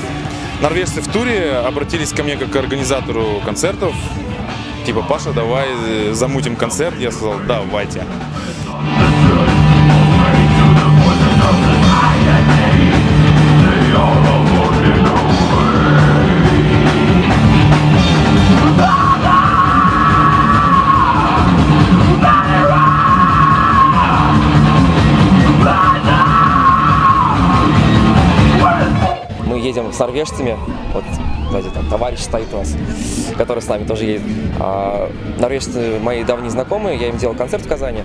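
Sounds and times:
distorted electric guitar: 0.0s - 38.0s
drums: 0.0s - 38.0s
singer yelling into microphone: 18.6s - 24.7s, 25.3s - 33.4s.

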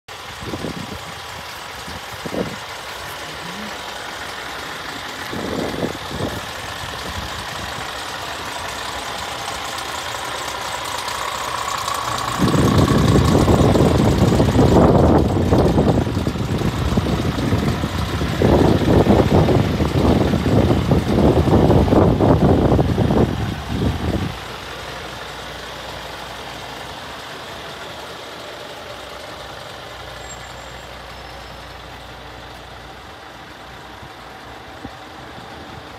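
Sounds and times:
truck diesel engine idling: 0.1s - 35.9s
wind buffeting microphone: 0.3s - 2.7s, 5.0s - 8.0s, 12.0s - 24.6s.

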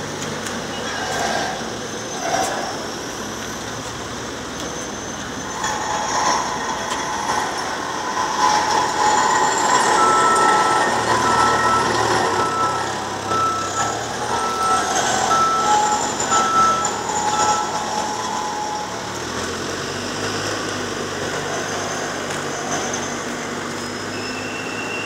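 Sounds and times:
vehicles passing slowly: 0.0s - 25.0s
vehicle warning beeper: 4.5s - 20.7s, 21.5s - 25.0s.

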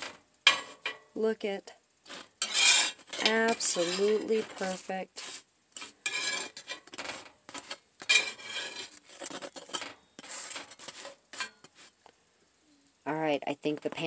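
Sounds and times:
metal spatula scraping skillet: 0.0s - 1.1s, 2.1s - 12.0s.

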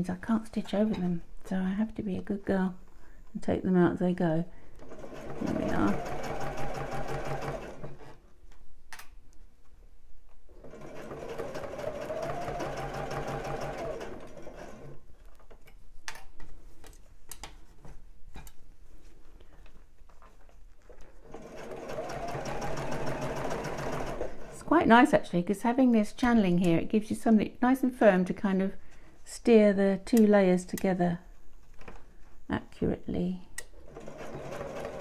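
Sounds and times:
sewing machine stitching: 4.8s - 8.2s, 10.5s - 15.0s, 21.2s - 24.7s, 33.8s - 35.0s.

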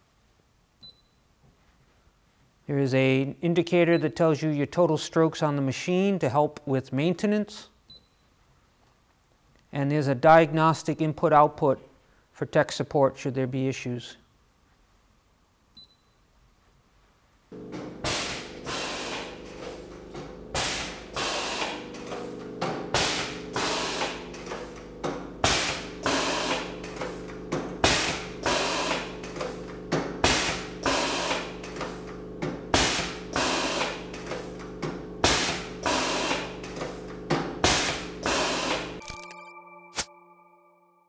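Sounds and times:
steady machine hum: 17.5s - 39.1s
press hissing and clunking: 17.6s - 39.0s.

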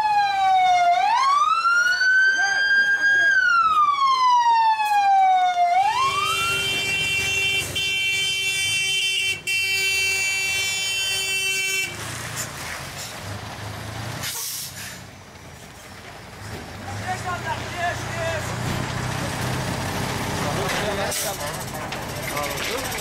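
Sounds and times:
fire engine siren: 0.0s - 11.7s
outdoor noise: 0.0s - 23.0s
truck engine running: 12.0s - 23.0s.

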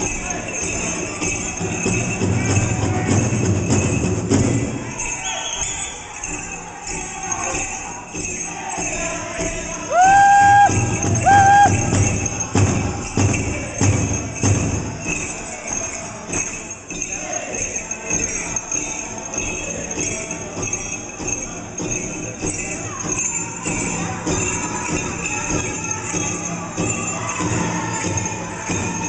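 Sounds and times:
drum group drumming and singing: 0.0s - 29.0s
jingling leg bells: 0.0s - 29.0s
loud high held calls: 4.9s - 6.3s, 9.7s - 12.6s.

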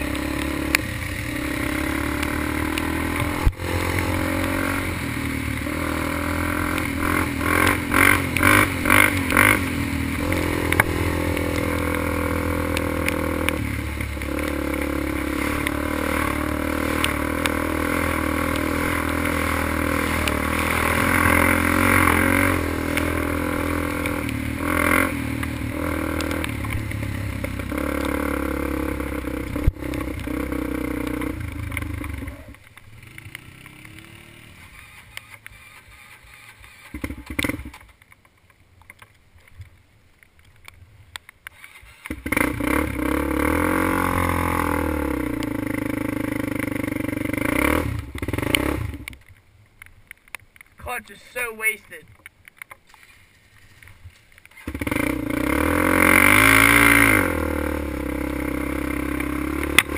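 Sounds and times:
atv engine running: 0.0s - 38.0s, 41.5s - 49.4s, 52.9s - 59.9s.

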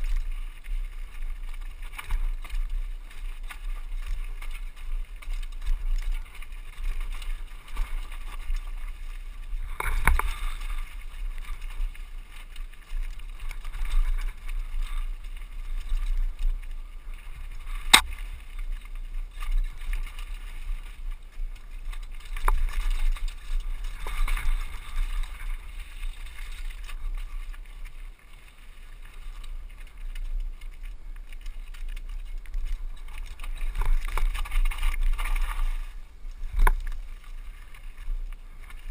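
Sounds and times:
bike tyres crunching over rock: 0.0s - 38.9s
bike knocking over rough ground: 17.5s - 20.8s.

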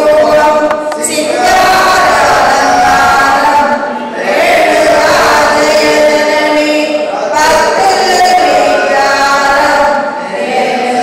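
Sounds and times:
group singing slow long notes: 0.0s - 11.0s.

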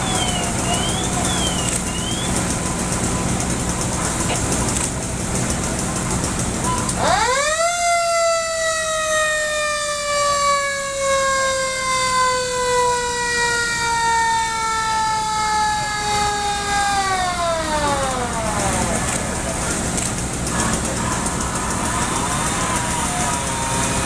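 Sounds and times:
mechanical siren winding: 0.0s - 2.4s
steady background noise: 0.0s - 24.0s.

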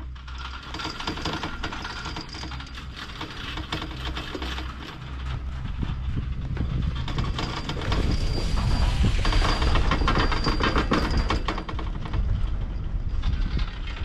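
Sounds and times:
chairlift mechanical clatter: 0.0s - 14.0s
low rumble: 2.6s - 14.0s
faint high whine: 5.6s - 11.5s.

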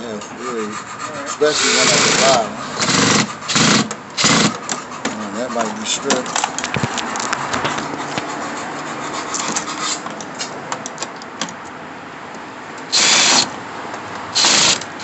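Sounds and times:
cordless drill driving screw: 1.6s - 4.8s, 12.9s - 13.5s, 14.4s - 15.0s
tool and hardware clatter: 2.8s - 8.3s.

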